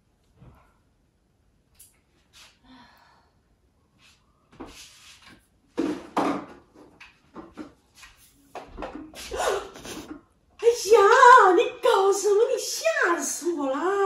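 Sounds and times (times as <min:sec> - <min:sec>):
household objects knocking and clattering: 0:05.7 - 0:07.8, 0:08.6 - 0:10.2.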